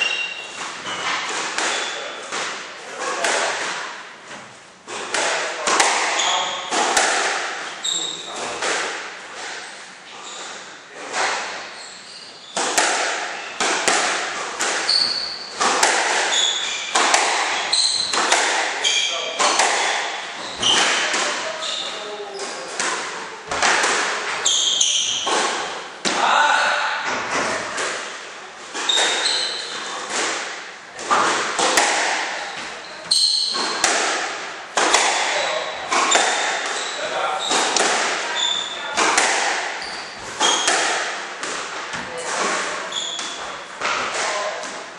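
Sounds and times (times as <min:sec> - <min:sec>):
shoes squeaking on wooden floor: 0:00.0 - 0:02.3, 0:07.7 - 0:08.6, 0:10.1 - 0:10.7, 0:11.7 - 0:12.8, 0:14.8 - 0:22.7, 0:24.3 - 0:25.7, 0:28.8 - 0:30.2, 0:32.4 - 0:33.9, 0:35.4 - 0:40.8, 0:41.9 - 0:44.1
squash ball hits echoing: 0:00.0 - 0:04.0, 0:04.9 - 0:09.6, 0:12.6 - 0:44.9.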